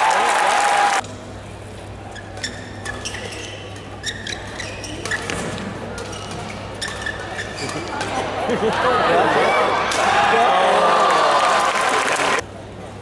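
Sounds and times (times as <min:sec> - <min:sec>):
loud crowd noise: 0:00.0 - 0:01.3, 0:07.3 - 0:13.0
shoes squeaking on court floor: 0:02.1 - 0:08.3.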